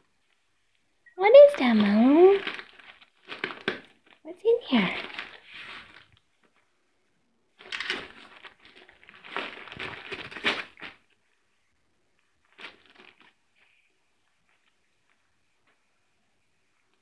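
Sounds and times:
wrapping paper tearing: 0:01.6 - 0:06.1, 0:07.6 - 0:11.1.

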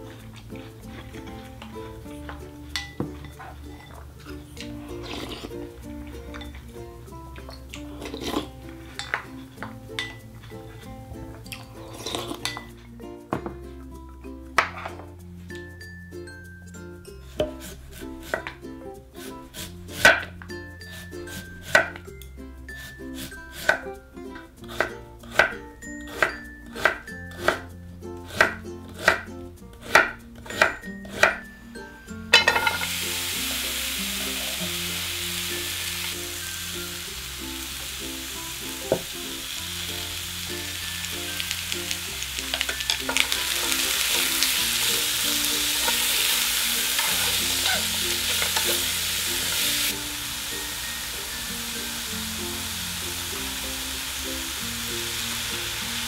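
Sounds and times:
food sizzling in a frying pan: 0:07.4 - 0:10.9, 0:11.5 - 0:12.7, 0:32.3 - 0:56.0.

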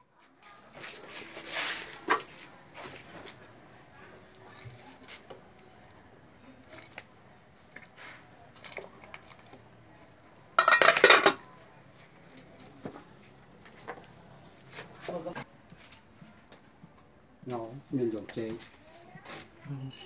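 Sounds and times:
high insect trill: 0:00.0 - 0:20.0
metal lid clattering onto pot: 0:10.6 - 0:11.4.

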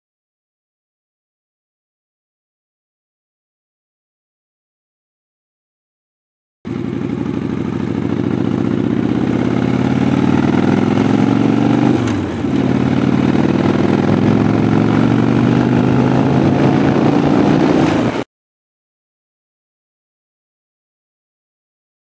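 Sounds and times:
motorcycle engine accelerating: 0:06.7 - 0:18.3.

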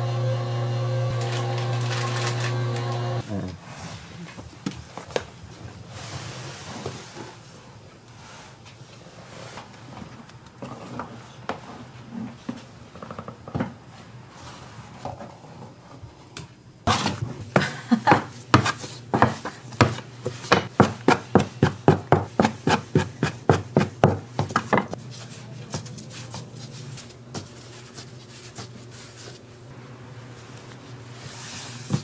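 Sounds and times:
rubbing and handling dough: 0:16.9 - 0:32.0.

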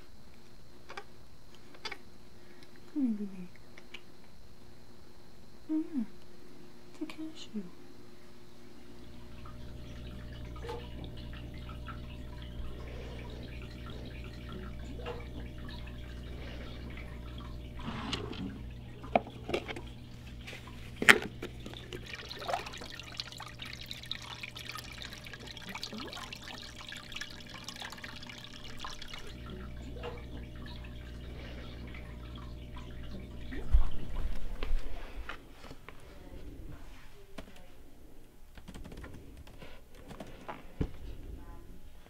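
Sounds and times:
steady low hum: 0:00.0 - 0:42.0
water trickling: 0:08.8 - 0:35.0
water dripping and splashing: 0:09.0 - 0:34.8.

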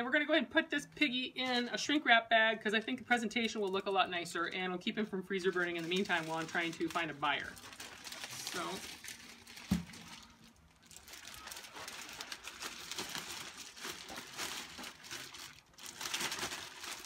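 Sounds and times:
plastic bag crinkling: 0:05.4 - 0:17.0.

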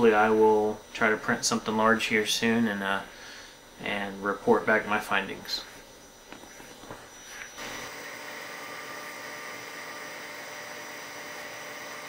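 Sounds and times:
printer motor and fan hum: 0:03.8 - 0:12.0.

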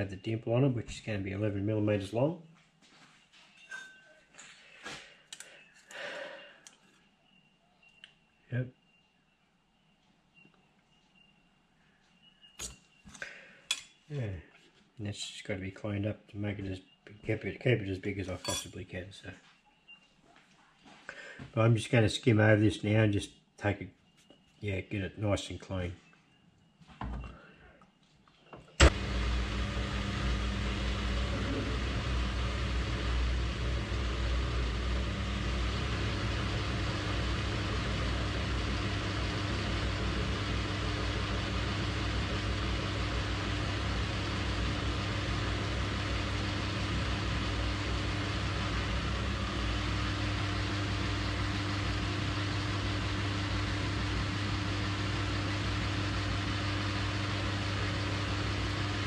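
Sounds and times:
lathe tool cutting metal: 0:28.8 - 0:59.0
metal lathe humming: 0:28.8 - 0:59.0.

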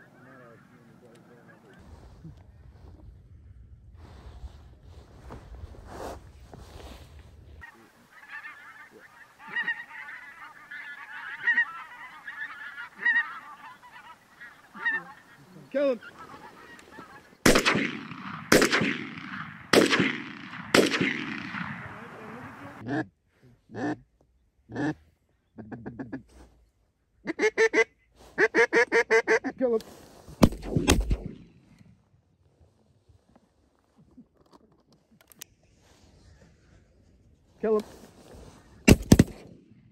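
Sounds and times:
geese honking: 0:00.0 - 0:01.8, 0:07.6 - 0:17.5, 0:21.6 - 0:22.9
duck call quacks: 0:07.6 - 0:17.2, 0:27.2 - 0:29.5
shotgun shots: 0:17.4 - 0:22.8, 0:30.4 - 0:31.5, 0:38.9 - 0:39.6.

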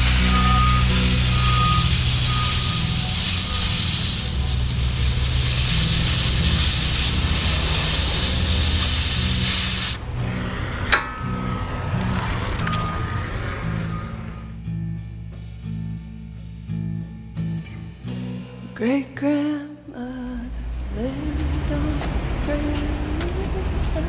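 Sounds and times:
spraying hiss: 0:00.0 - 0:10.0.

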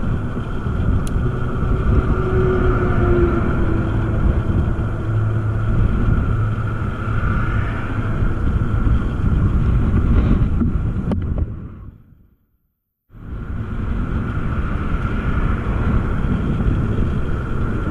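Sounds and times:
small engine running: 0:00.0 - 0:10.9
wind rumble on microphone: 0:00.0 - 0:12.4, 0:13.1 - 0:17.9.

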